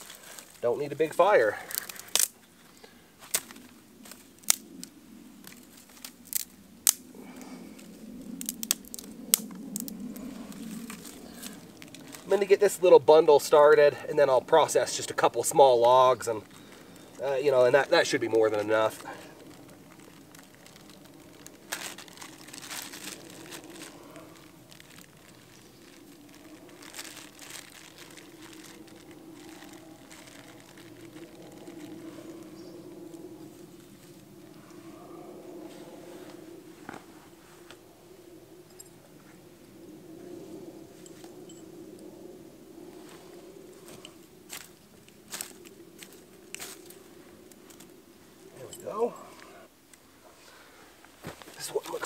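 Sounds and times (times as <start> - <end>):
sticks rustling: 0.0 - 0.7, 1.5 - 7.0, 7.8 - 12.5, 15.8 - 32.4, 43.0 - 52.0
dry tinder crinkling in hands: 0.0 - 34.8, 42.8 - 50.1
twigs snapping: 1.6 - 2.5, 3.2 - 12.3, 15.8 - 32.5, 43.8 - 49.0.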